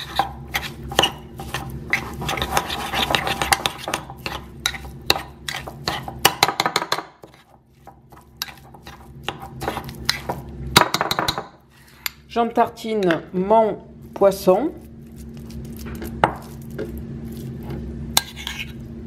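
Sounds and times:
metal spoon scraping ceramic bowl: 0.0 - 6.1, 18.1 - 18.9.

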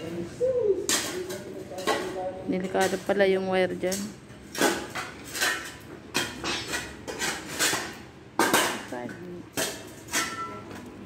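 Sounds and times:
steel bar clanking on rubble: 3.8 - 10.9.

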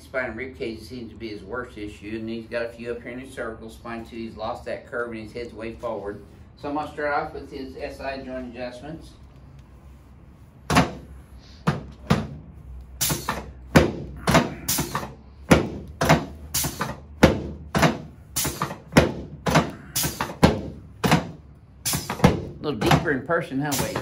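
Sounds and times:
padded table thumping: 10.7 - 12.4, 13.1 - 23.2.

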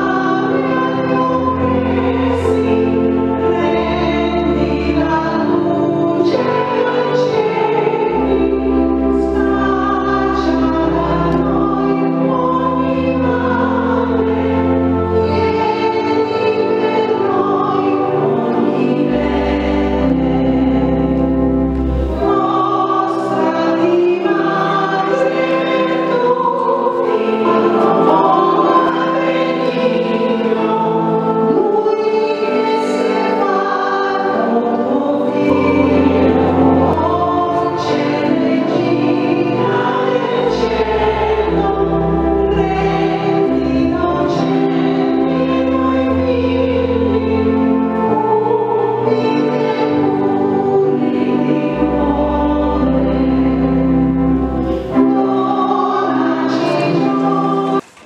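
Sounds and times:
choir singing a hymn: 0.0 - 57.8
low held accompaniment notes: 0.0 - 57.8.

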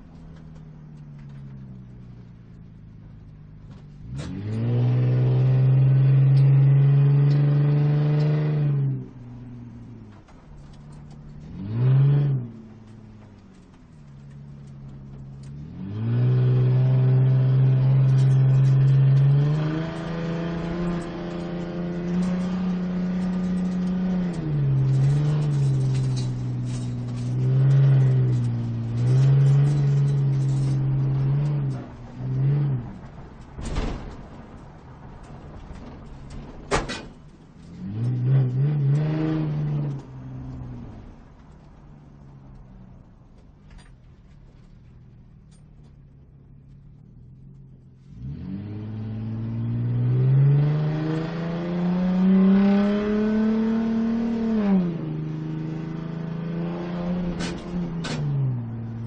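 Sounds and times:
sports car engine revving: 4.0 - 33.4, 47.2 - 59.0.

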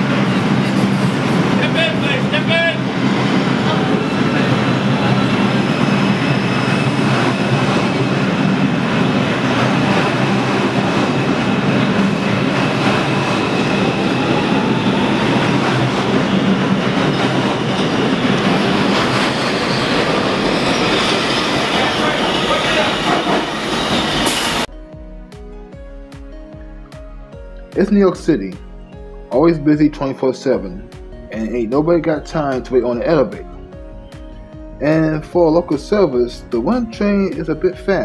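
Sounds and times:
train wheel and rail noise: 0.0 - 24.7
clickety-clack over rail joints: 9.0 - 20.1.

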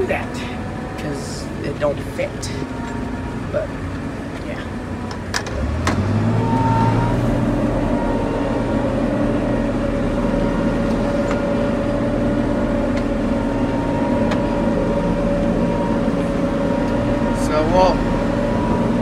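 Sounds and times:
combine engine running: 0.0 - 19.0.

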